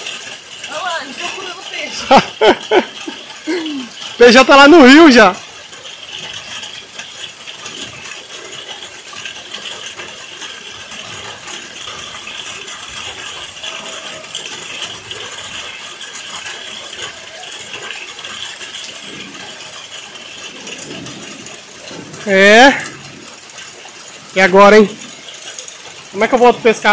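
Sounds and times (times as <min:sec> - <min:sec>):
rain falling on puddles: 0:00.0 - 0:26.9.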